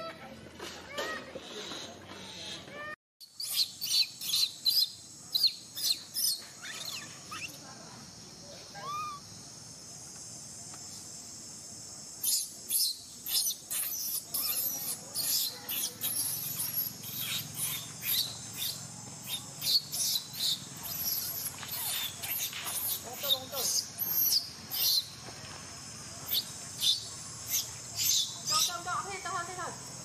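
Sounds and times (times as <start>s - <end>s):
insects droning: 1.0s - 30.0s
sharp high-pitched chirps: 3.2s - 7.6s, 12.2s - 25.2s.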